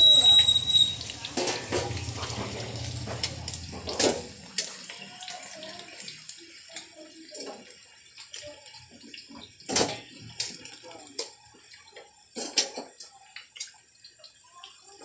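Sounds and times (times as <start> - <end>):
meat sizzling in hot oil: 0.0 - 15.0
metal tongs clacking on pan: 12.4 - 13.8.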